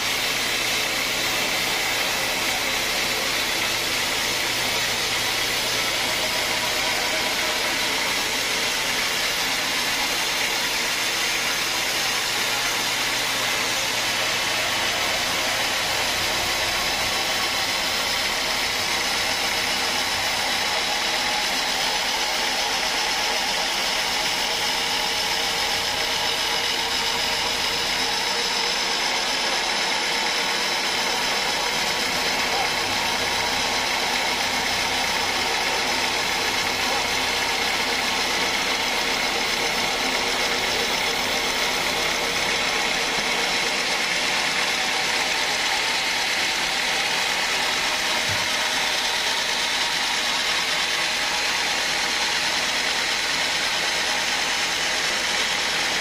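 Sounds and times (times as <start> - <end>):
sawmill mechanical drone: 0.0 - 56.0
steady saw whine: 0.0 - 56.0.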